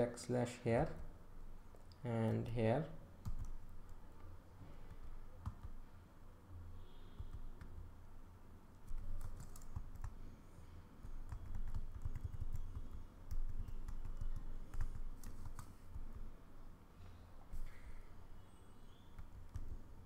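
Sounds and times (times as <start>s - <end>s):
low steady hum: 0.0s - 20.0s
computer keyboard clacking: 3.2s - 3.6s, 5.0s - 5.8s, 8.8s - 10.2s, 11.0s - 16.3s, 19.2s - 19.8s.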